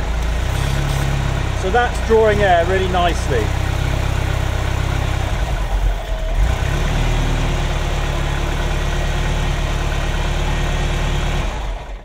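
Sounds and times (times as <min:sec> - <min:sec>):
car engine idling unevenly: 0:00.0 - 0:06.8.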